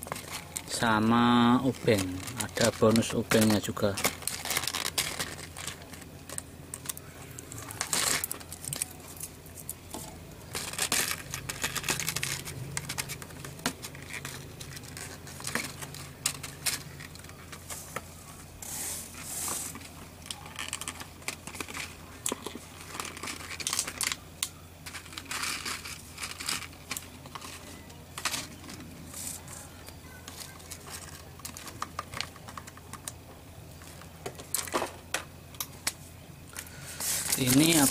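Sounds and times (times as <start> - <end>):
plastic packaging crinkling: 0.0 - 37.9.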